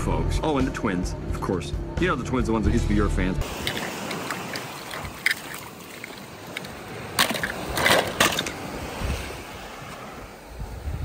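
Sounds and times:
wind and surf hiss: 3.4s - 11.0s.

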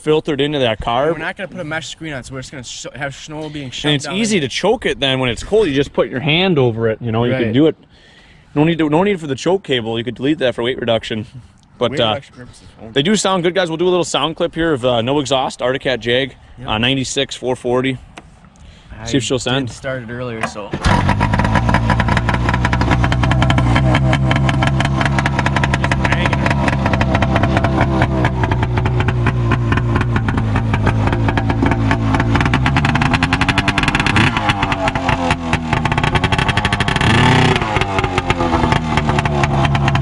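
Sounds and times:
engine throttle blips: 20.0s - 40.0s
two-stroke engine running: 20.8s - 40.0s.

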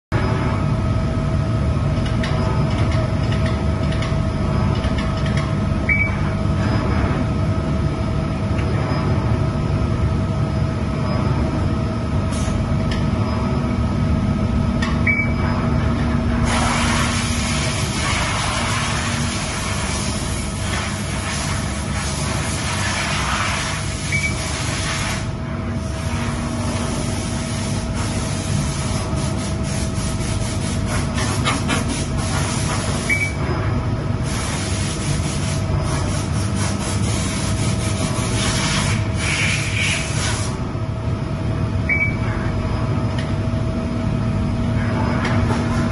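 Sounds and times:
machine hum: 0.1s - 45.9s
hiss: 16.5s - 25.3s, 34.3s - 40.6s.

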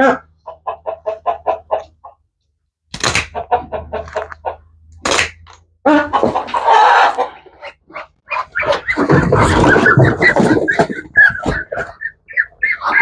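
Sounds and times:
poultry calls: 5.9s - 13.0s.

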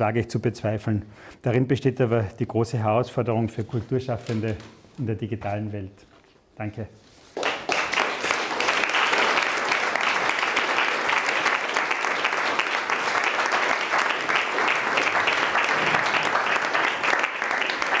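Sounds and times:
audience applauding: 7.4s - 18.0s.

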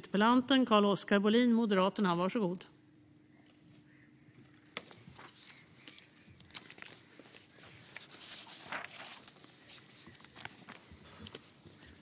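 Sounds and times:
papers rustling: 4.7s - 12.0s.

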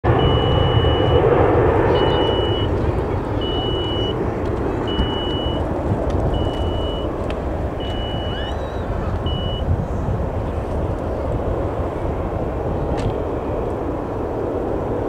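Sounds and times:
low engine rumble: 0.0s - 15.0s
reversing alarm beeping: 0.1s - 1.3s, 1.9s - 2.7s, 3.4s - 4.2s, 4.9s - 5.7s, 6.3s - 7.1s, 7.8s - 9.7s.

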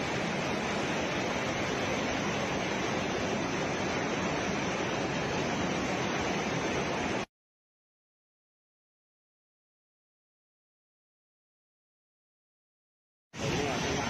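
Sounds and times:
rushing water: 0.0s - 7.3s, 13.4s - 14.0s.

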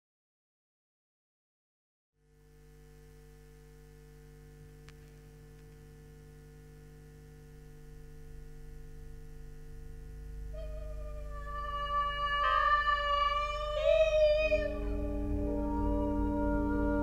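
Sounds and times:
steady electric hum: 2.2s - 17.0s
faint click: 4.8s - 5.9s.

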